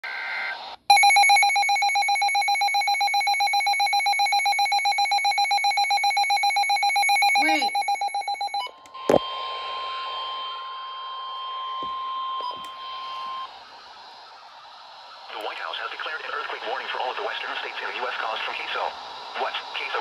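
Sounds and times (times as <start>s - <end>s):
rapidly pulsing alarm beep: 0.9s - 8.7s, 15.8s - 20.0s
steady alarm tone: 0.9s - 8.7s
radio hiss: 15.2s - 20.0s.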